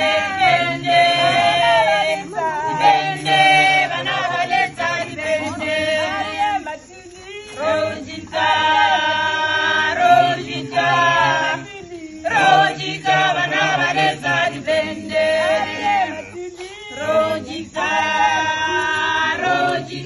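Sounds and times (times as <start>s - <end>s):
choir singing unaccompanied: 0.0s - 20.0s.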